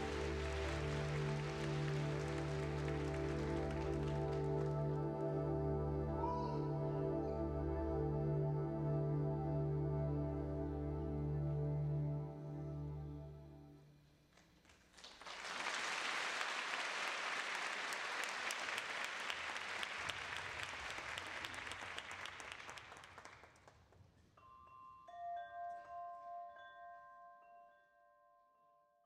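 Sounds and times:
audience applause: 0.0s - 5.6s, 14.7s - 23.7s
soft ringing chime tones: 24.4s - 28.9s.

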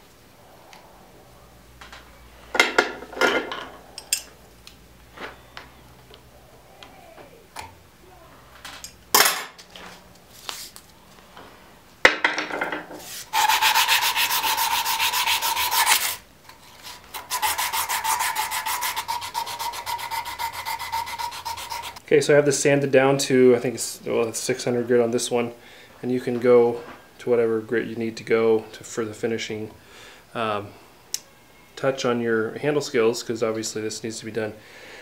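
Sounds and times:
sandpaper rubbing: 13.0s - 22.0s.

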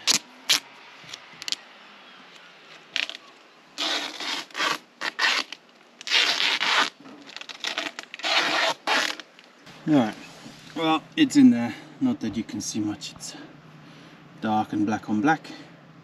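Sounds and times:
tape ripping off roll: 0.0s - 1.6s, 2.7s - 9.6s.

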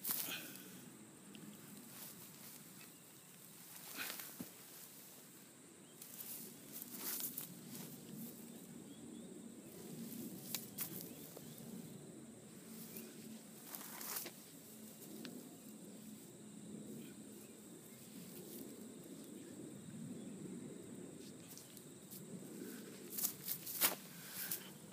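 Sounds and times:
rustling on grass: 0.0s - 0.8s, 1.4s - 8.7s, 9.7s - 11.9s, 12.5s - 16.3s, 21.2s - 24.9s
faint outdoor ambience: 0.0s - 24.9s
footsteps on grass: 6.0s - 8.2s, 23.0s - 24.6s.

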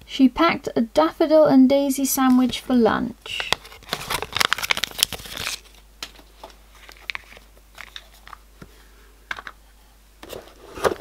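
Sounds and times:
packaging rustling: 3.3s - 8.4s.

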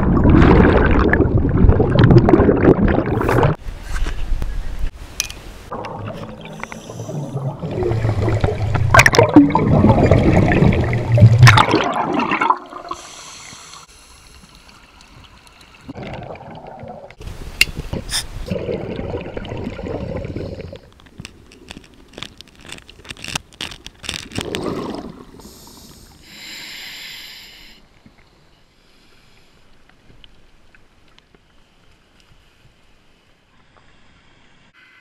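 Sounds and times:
bubbles rushing underwater: 0.0s - 3.6s, 5.7s - 13.0s, 15.9s - 17.2s, 18.5s - 20.8s
hissing inhalation through regulator: 12.8s - 14.7s, 25.3s - 27.8s.

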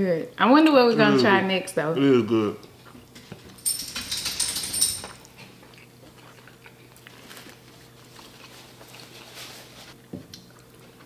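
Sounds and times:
chewing with small clicks: 5.2s - 7.3s, 10.3s - 11.0s.

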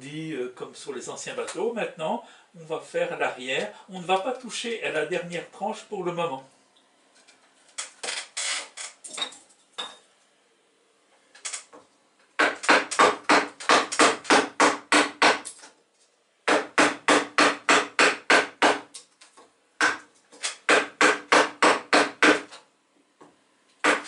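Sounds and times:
wooden mallet striking chisel: 12.4s - 15.5s, 16.5s - 18.9s, 19.8s - 22.5s.

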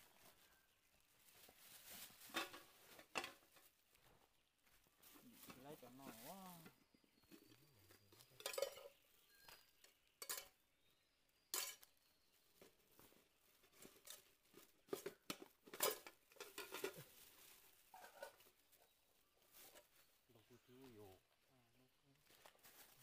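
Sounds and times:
objects clinking and knocking: 6.6s - 10.6s, 11.5s - 12.0s, 13.6s - 17.2s.

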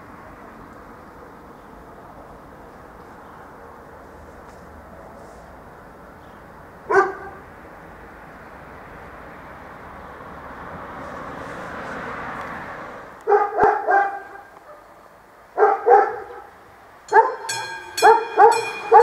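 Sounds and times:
dogs barking: 6.9s - 7.5s, 13.2s - 19.0s
level crossing bell ringing: 17.1s - 19.0s.

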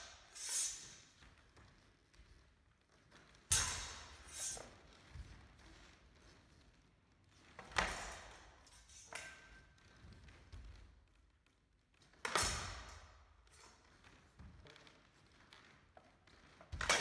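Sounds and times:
steel swords clashing: 3.5s - 4.6s.

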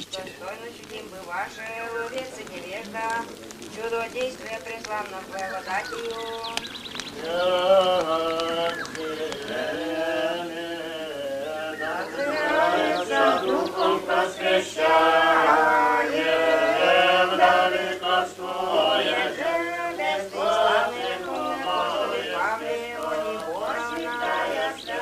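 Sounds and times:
group singing religious chant: 7.1s - 25.0s.

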